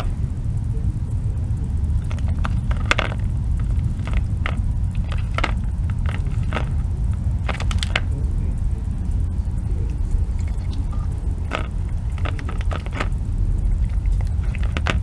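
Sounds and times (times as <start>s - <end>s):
steady low rumble: 0.0s - 15.0s
fox chewing clicks and smacks: 2.0s - 8.1s, 9.6s - 15.0s.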